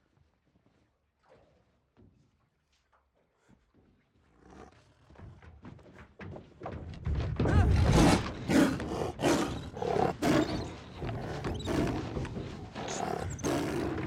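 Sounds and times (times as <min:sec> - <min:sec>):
tiger snarling and roaring: 0:07.6 - 0:14.0.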